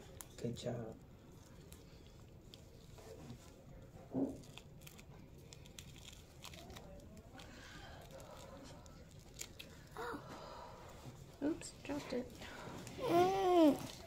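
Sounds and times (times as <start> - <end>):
plastic dressing crinkling: 0.0 - 10.0.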